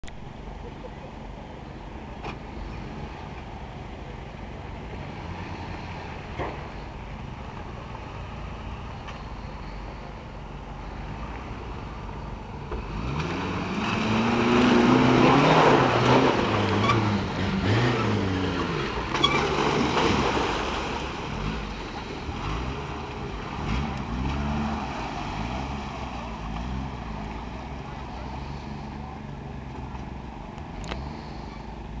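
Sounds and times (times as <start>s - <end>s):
tyres churning wet ground: 0.0s - 32.0s
car engine revving: 10.8s - 32.0s.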